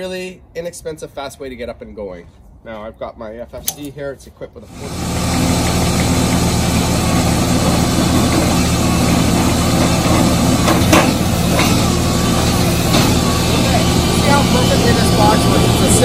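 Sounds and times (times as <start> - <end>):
diesel engine running: 4.7 - 16.0.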